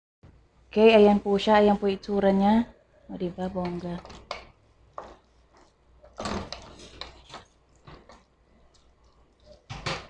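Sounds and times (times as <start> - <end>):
wooden spatula scraping a pot: 5.0 - 8.2.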